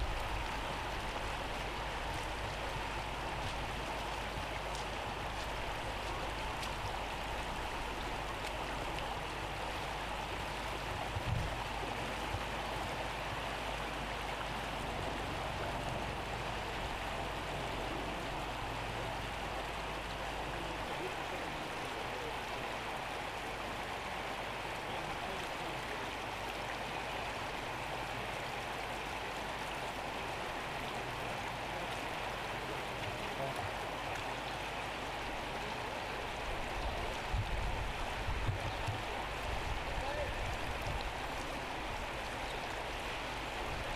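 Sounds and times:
floodwater rushing: 0.0 - 43.9.

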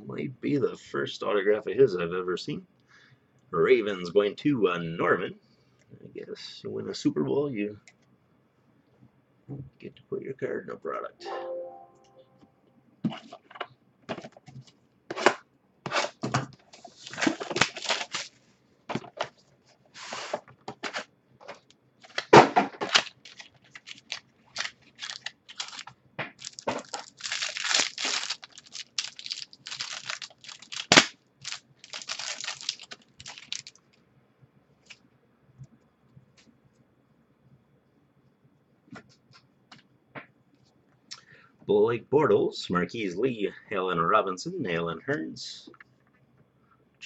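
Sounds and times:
wrapper and cardboard tearing: 16.8 - 18.4, 22.0 - 33.8.

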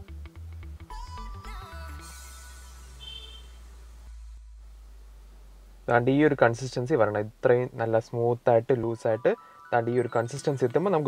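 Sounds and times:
short high note: 2.7 - 3.8
held electronic notes: 6.0 - 11.0.

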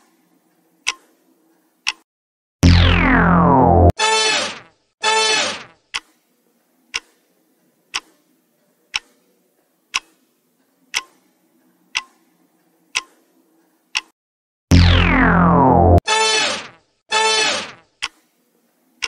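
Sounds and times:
clock ticking: 0.8 - 1.0, 1.8 - 2.0, 5.9 - 6.2, 6.9 - 7.2, 7.9 - 8.2, 8.9 - 9.2, 9.9 - 10.3, 10.9 - 12.2, 12.9 - 13.2, 13.9 - 14.2, 18.0 - 18.3.

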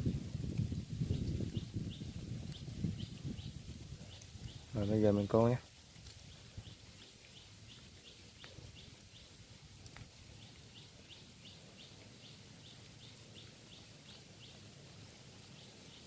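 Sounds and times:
faint clicks: 9.8 - 10.7.

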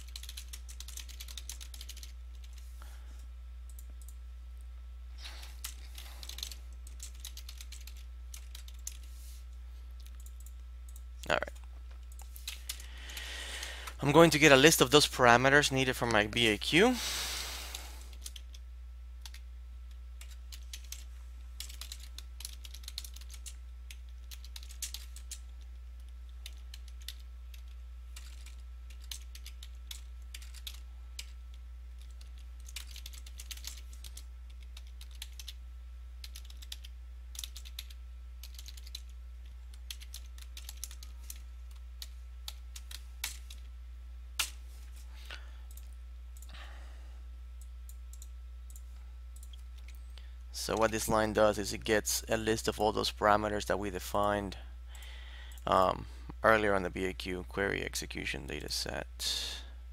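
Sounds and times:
typing on computer keyboard: 0.0 - 2.6, 5.6 - 9.1, 18.1 - 18.6, 19.2 - 19.4, 20.2 - 31.4, 32.0 - 35.6, 36.2 - 43.7
low electrical hum: 0.0 - 59.9.

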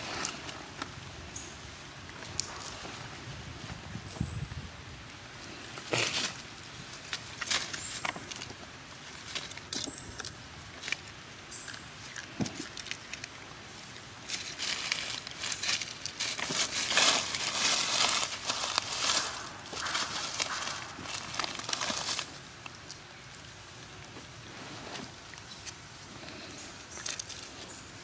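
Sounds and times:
dry leaves crackling: 0.0 - 28.0
monkey chewing leaf: 7.1 - 23.1.

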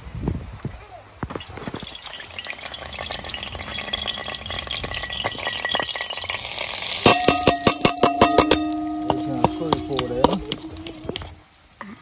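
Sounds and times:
dense rattling clatter: 1.4 - 6.5
sharp clinks with ringing tone: 7.1 - 10.9.

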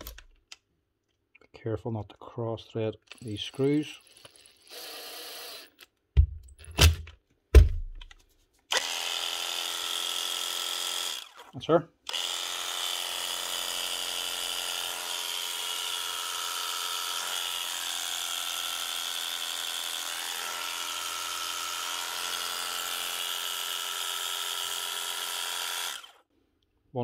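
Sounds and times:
electric clippers buzzing: 4.7 - 5.8, 8.7 - 11.4, 12.1 - 26.2.

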